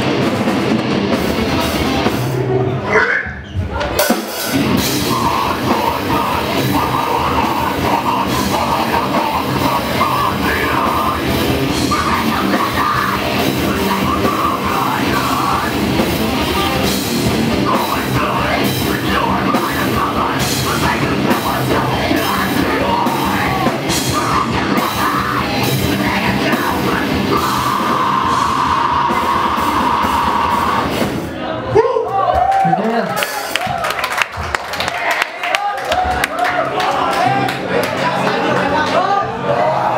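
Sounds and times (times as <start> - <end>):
rock band playing live: 0.0 - 31.6.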